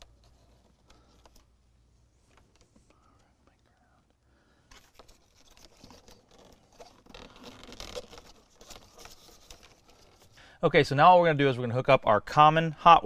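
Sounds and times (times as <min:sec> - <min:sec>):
wires scratching and rustling: 0:00.0 - 0:10.4.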